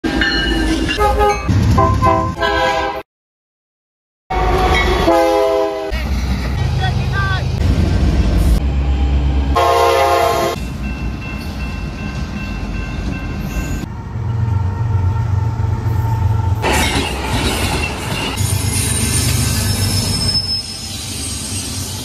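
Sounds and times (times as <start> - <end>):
diesel locomotives rumbling past: 0.0 - 3.0, 4.3 - 22.0
passenger train rushing past: 0.1 - 3.0, 4.3 - 22.0
locomotive horn blast: 1.0 - 3.0, 4.3 - 6.0, 9.6 - 10.6.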